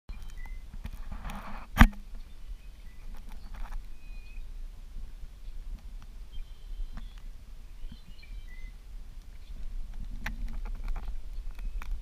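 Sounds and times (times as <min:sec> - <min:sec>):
small ticks: 0:09.2 - 0:12.0.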